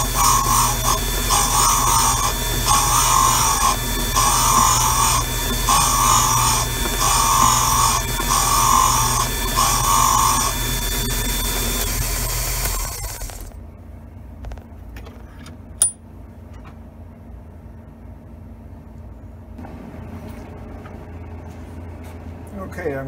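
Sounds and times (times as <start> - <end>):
valve refacing machine grinding: 0.0 - 13.5
sharp metallic click: 15.8 - 16.0.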